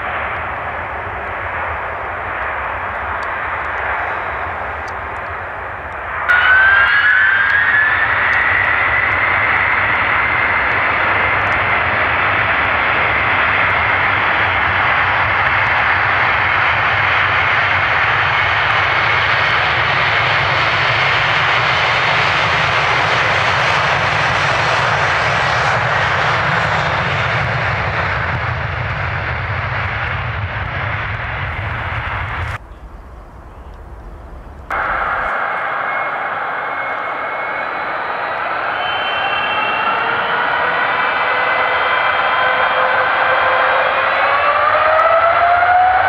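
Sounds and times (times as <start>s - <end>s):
jet engines at high power: 0.0s - 46.0s.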